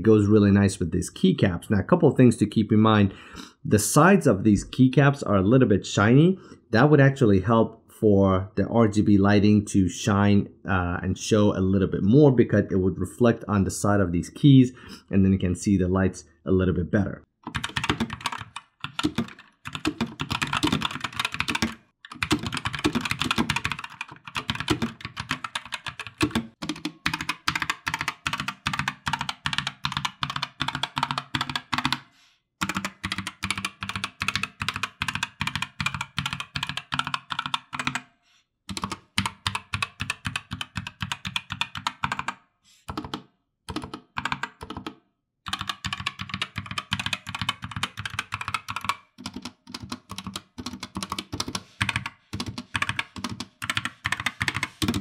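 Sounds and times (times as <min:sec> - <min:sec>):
mechanical keyboard typing: 0:17.5 - 0:32.0, 0:32.6 - 0:38.1, 0:38.7 - 0:44.9, 0:45.5 - 0:55.0.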